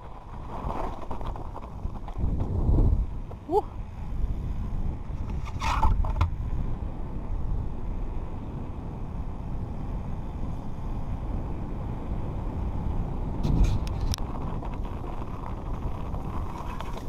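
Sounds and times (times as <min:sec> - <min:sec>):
tyres rumbling on tarmac: 0:00.0 - 0:17.0
wind buffeting microphone: 0:00.0 - 0:17.0.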